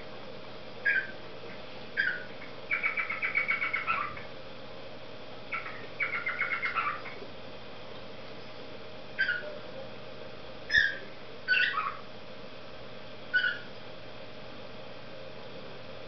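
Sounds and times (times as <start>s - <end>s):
cockatiel whistling: 0.9s - 1.1s, 10.7s - 12.0s, 13.3s - 13.7s.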